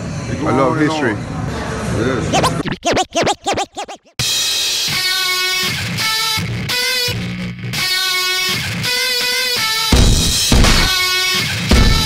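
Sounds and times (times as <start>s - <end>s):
wobbling sound effect: 2.3s - 4.2s.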